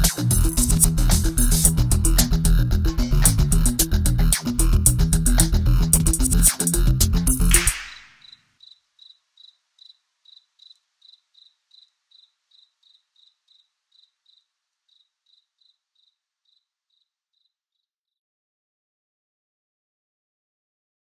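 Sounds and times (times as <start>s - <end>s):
cricket chirping: 7.9s - 17.9s.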